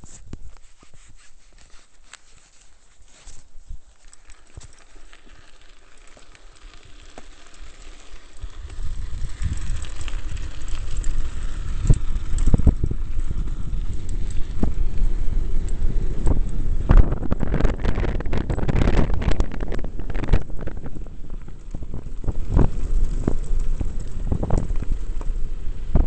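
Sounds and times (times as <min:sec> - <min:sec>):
bike tyres rumbling over gravel: 0:00.0 - 0:26.0
bike rattling clicks: 0:03.3 - 0:26.0
wind buffeting microphone: 0:08.2 - 0:26.0.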